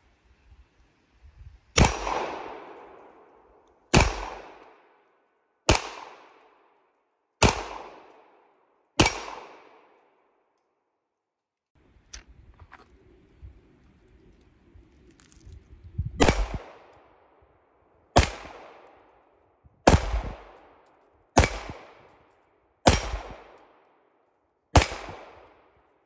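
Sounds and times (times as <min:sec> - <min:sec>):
pistol shots echoing: 0:01.8 - 0:03.3, 0:03.9 - 0:05.0, 0:05.7 - 0:06.7, 0:07.4 - 0:10.1, 0:16.2 - 0:16.9, 0:18.2 - 0:19.1, 0:19.8 - 0:20.8, 0:21.4 - 0:22.1, 0:22.8 - 0:23.8, 0:24.7 - 0:25.7.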